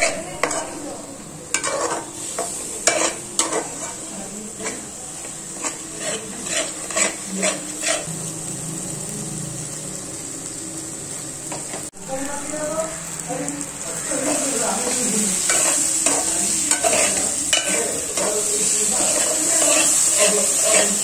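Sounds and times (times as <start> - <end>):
spatula scraping a pot: 0.0 - 0.9, 1.5 - 8.1, 15.4 - 21.0
frying sizzle: 0.0 - 21.0.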